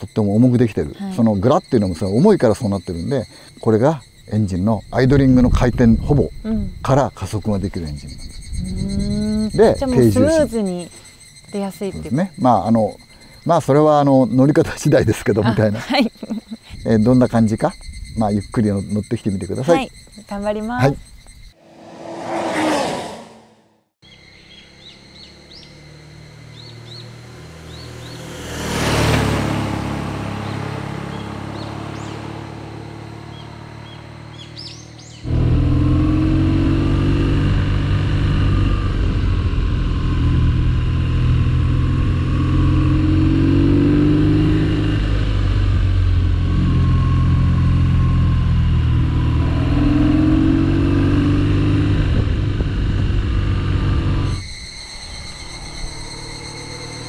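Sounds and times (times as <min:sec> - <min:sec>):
birds chirping: 0:00.0 - 0:22.9, 0:24.0 - 0:35.3
motorcycle engine at road speed: 0:21.6 - 0:54.4, 0:55.1 - 0:57.0
motorcycle passing by: 0:21.6 - 0:54.4, 0:55.1 - 0:57.0.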